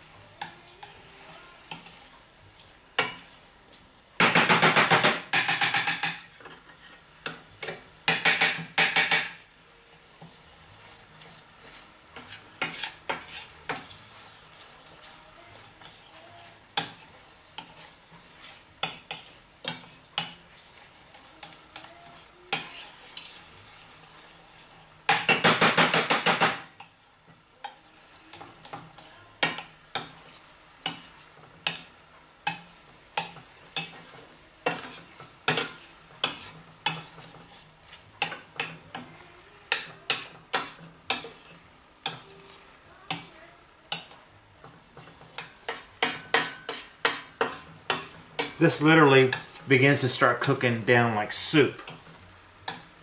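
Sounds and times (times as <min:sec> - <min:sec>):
food sizzling in a pan: 0:00.0 - 0:53.0
metal spoon clinking on pan: 0:03.0 - 0:03.3, 0:04.2 - 0:06.6, 0:17.6 - 0:20.4, 0:21.2 - 0:23.4, 0:27.6 - 0:37.6, 0:38.2 - 0:39.1, 0:39.7 - 0:43.3, 0:43.9 - 0:44.2, 0:45.2 - 0:48.6, 0:51.8 - 0:52.9.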